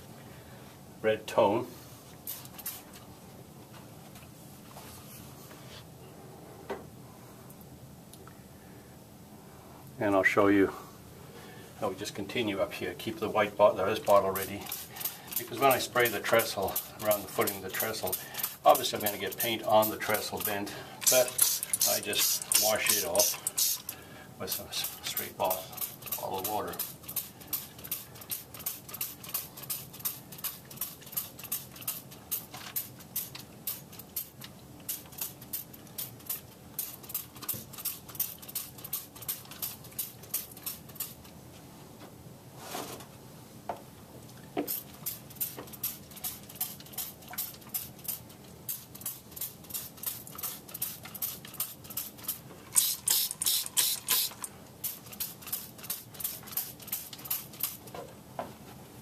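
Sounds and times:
spray bottle squirting: 2.2 - 3.0, 14.4 - 41.2, 44.7 - 57.9.

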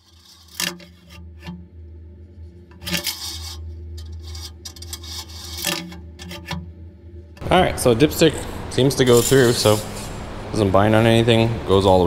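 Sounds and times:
metal dipstick scraping in tube: 0.0 - 1.6, 2.7 - 6.8
steady low hum: 0.0 - 12.0.

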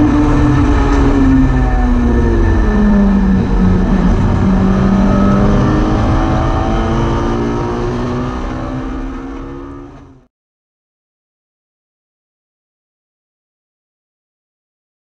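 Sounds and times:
race car engine running hard: 0.0 - 10.2.

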